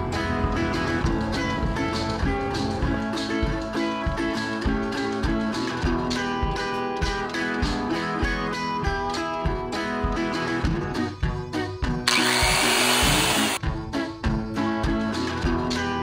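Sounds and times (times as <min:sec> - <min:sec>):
guitar background music: 0:00.0 - 0:16.0
electric cut saw running: 0:12.1 - 0:13.6.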